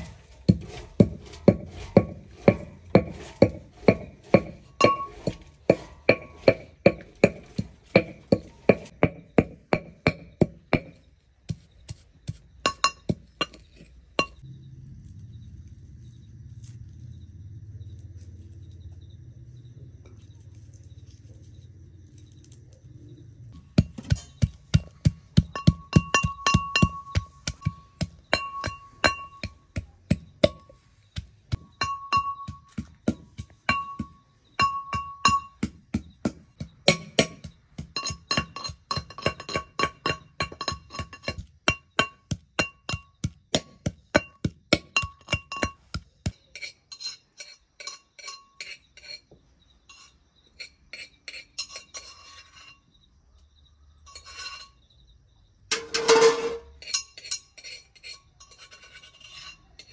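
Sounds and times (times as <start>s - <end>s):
metal mortar and pestle pounding: 0.0s - 14.4s, 23.6s - 49.2s, 55.7s - 59.9s.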